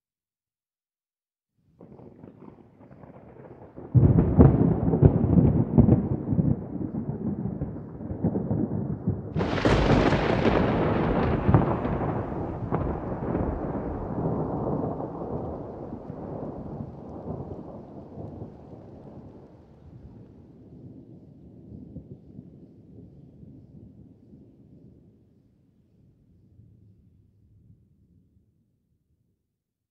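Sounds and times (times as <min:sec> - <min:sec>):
thunder crack: 0:01.8 - 0:19.4
thunder rumble: 0:01.8 - 0:24.0.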